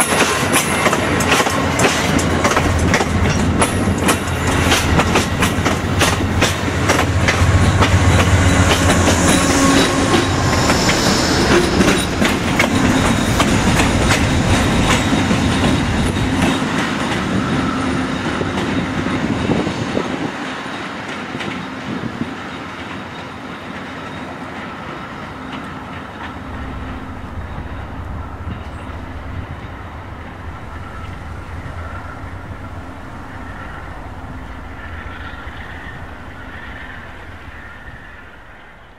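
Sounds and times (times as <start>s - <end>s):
train wheels clicking over rail joints: 0.0s - 24.7s
diesel locomotive drone: 0.0s - 38.9s.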